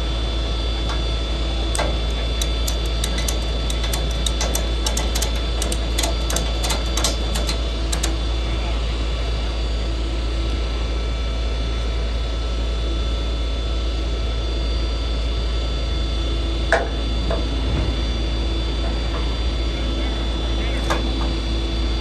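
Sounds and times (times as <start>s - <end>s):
truck engine droning: 0.0s - 12.3s, 15.9s - 22.0s
strap clicks: 1.7s - 8.2s.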